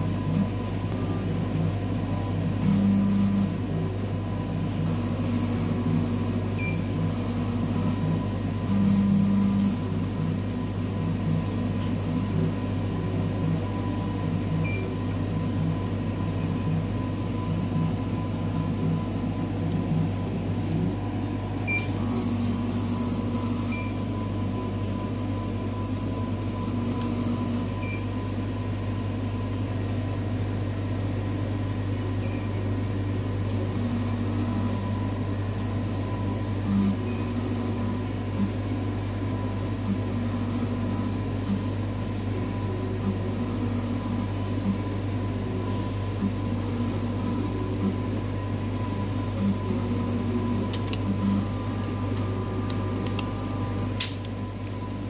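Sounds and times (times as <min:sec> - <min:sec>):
machine hum: 0:00.0 - 0:55.0.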